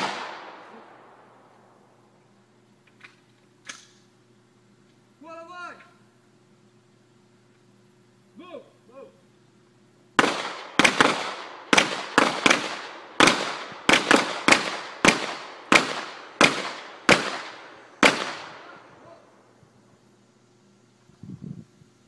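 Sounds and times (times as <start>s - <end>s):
gunshots with ringing echo: 0.0s - 1.4s, 10.2s - 18.9s.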